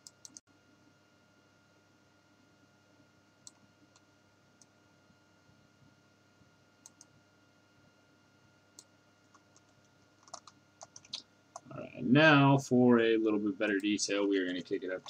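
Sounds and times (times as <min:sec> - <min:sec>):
computer mouse and key clicks: 0:00.0 - 0:00.4, 0:03.4 - 0:04.7, 0:06.8 - 0:07.2, 0:08.8 - 0:11.7
faint steady hum: 0:00.0 - 0:15.0.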